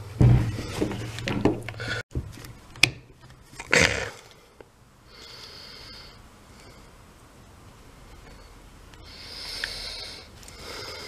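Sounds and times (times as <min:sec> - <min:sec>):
plastic parts knocking and rustling: 0:00.1 - 0:03.7.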